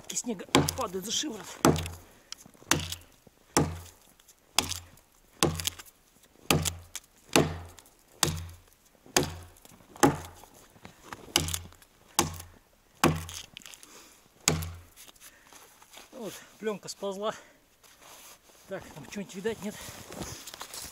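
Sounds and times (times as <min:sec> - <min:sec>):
axe chopping into tree trunk: 0:00.5 - 0:01.0, 0:01.6 - 0:04.0, 0:04.6 - 0:05.9, 0:06.5 - 0:10.5, 0:11.3 - 0:13.5, 0:14.4 - 0:15.0.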